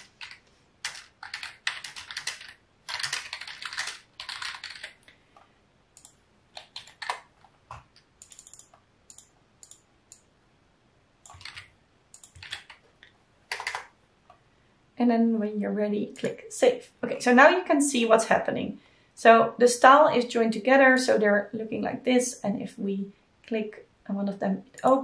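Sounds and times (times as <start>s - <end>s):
typing on computer keyboard: 0.0s - 5.1s, 6.0s - 9.8s, 11.2s - 12.8s, 13.5s - 13.9s.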